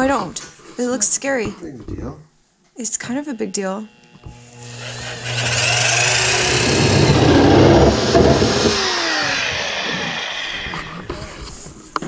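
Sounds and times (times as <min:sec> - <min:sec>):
drill bit grinding metal: 0:02.9 - 0:11.4
drill motor hum: 0:02.9 - 0:11.4.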